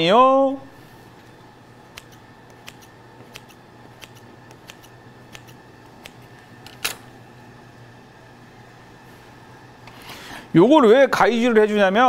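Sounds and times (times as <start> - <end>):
scissors snipping dough: 1.9 - 6.3.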